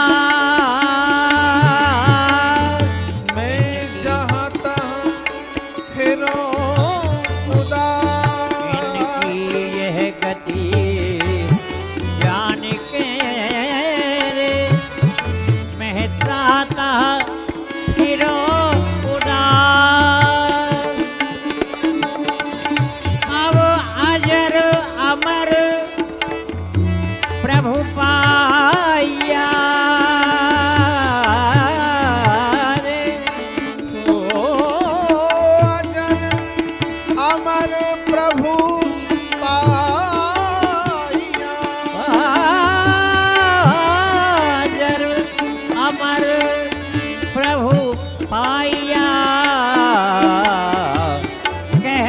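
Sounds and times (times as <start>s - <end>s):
tabla rhythm: 0.0s - 52.0s.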